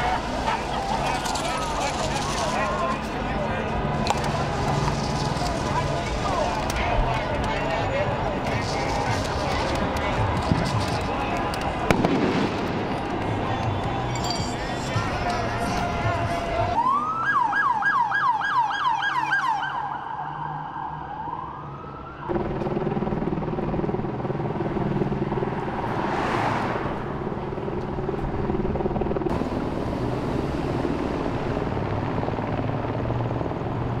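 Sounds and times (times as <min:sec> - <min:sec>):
street traffic noise: 0:00.0 - 0:34.0
police siren yelping and wailing: 0:15.3 - 0:22.4.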